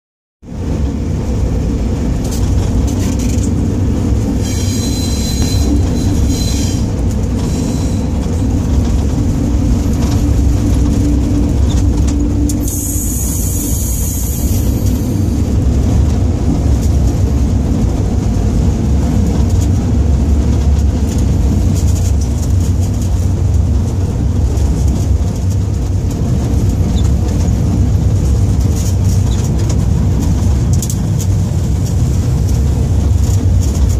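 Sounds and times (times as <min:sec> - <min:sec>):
diesel locomotive rumble: 0:00.4 - 0:33.9
rail running noise: 0:00.4 - 0:33.9
wheel squeal: 0:04.4 - 0:08.2.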